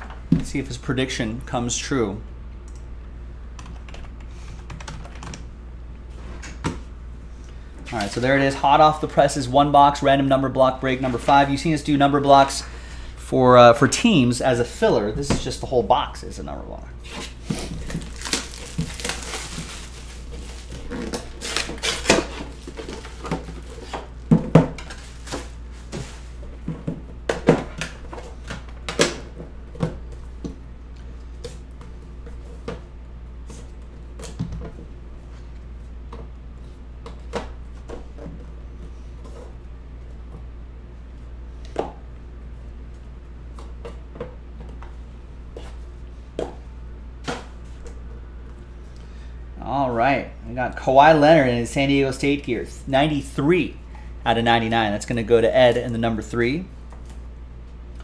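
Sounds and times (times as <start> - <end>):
shrink wrap crinkling: 17.3 - 26.5.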